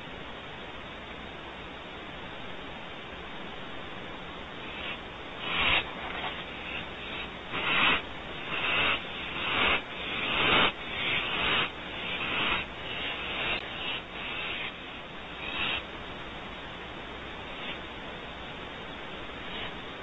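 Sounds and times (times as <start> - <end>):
owlets hissing: 4.4 - 20.0.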